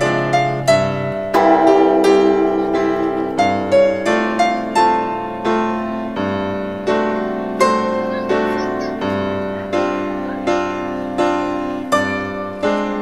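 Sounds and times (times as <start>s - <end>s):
solo piano music: 0.0s - 8.5s.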